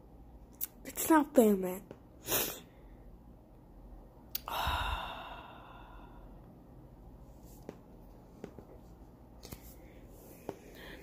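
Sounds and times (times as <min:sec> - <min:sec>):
mouth click: 0:04.3 - 0:04.5
person sighing: 0:04.4 - 0:06.2.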